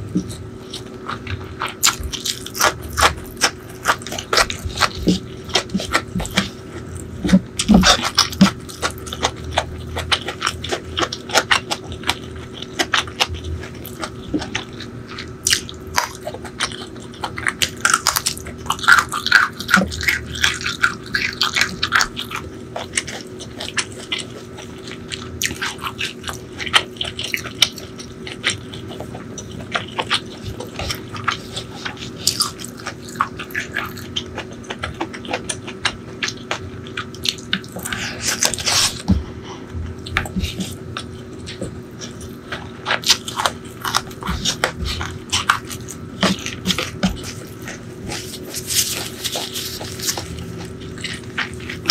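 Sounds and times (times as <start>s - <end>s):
wet chewing and lip smacks: 0.2s - 39.1s.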